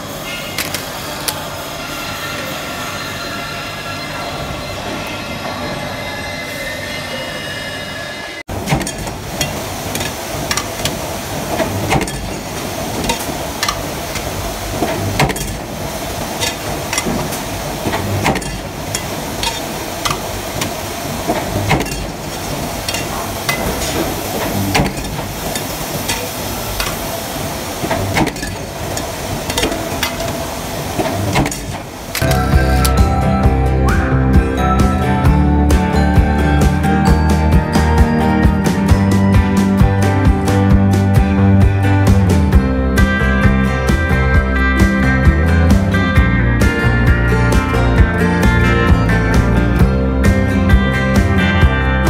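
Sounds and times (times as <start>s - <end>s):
steady machine hum: 0.0s - 52.0s
sharp metal clanks: 16.4s - 20.7s, 22.8s - 27.0s.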